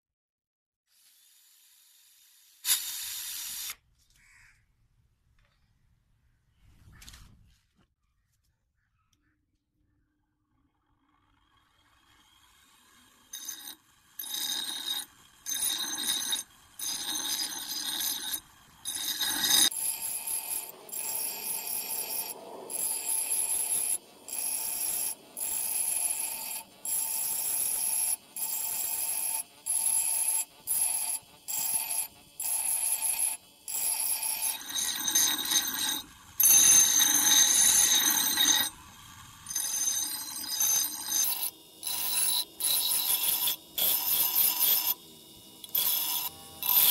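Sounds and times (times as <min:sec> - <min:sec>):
chisel screeching on grinder wheel: 0:11.6 - 0:46.9.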